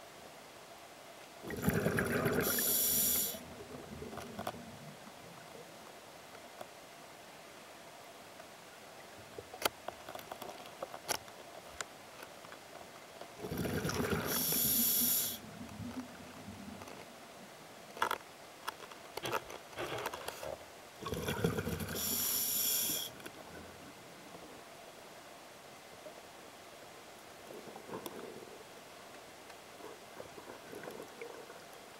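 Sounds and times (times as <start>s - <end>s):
diver breathing through regulator: 1.7s - 3.4s, 13.5s - 15.4s, 21.0s - 23.2s
sharp clicks and crackles: 17.9s - 20.6s.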